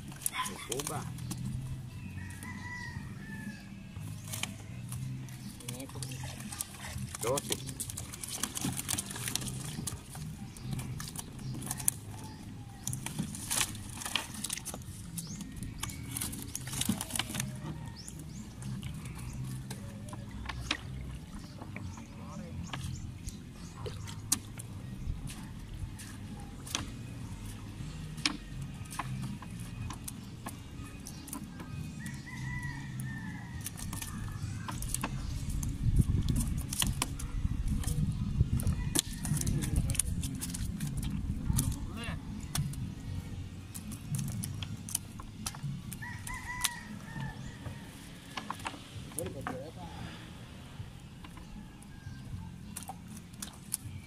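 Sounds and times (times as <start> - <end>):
water drips and splashes: 0.0 - 1.9, 4.2 - 51.5, 52.2 - 54.0
rooster crowing: 2.2 - 3.9, 32.0 - 34.6, 46.0 - 48.5
fishing net knocking and rustling: 4.2 - 32.8, 33.4 - 43.0
net and weights clicking: 5.6 - 12.2, 12.8 - 17.8.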